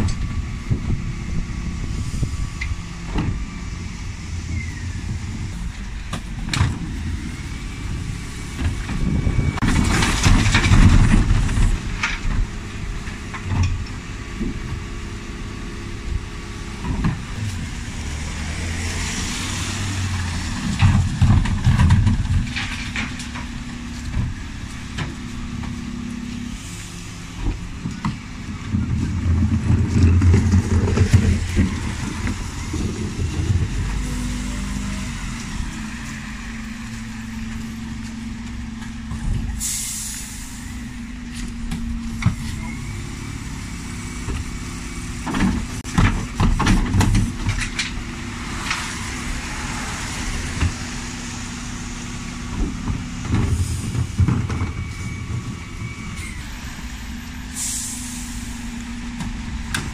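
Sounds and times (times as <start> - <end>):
clanks and knocks: 20.6 - 25.8, 45.2 - 48.0.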